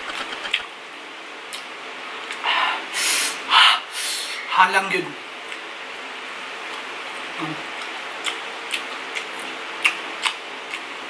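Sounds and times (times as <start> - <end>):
steady hiss: 2.4 - 5.1.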